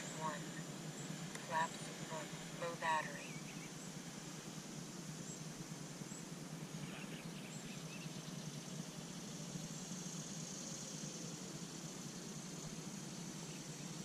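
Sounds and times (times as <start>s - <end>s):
high whine of electric fans: 0.0s - 14.0s
outdoor hiss: 0.0s - 14.0s
faint bird chirps: 0.2s - 9.2s.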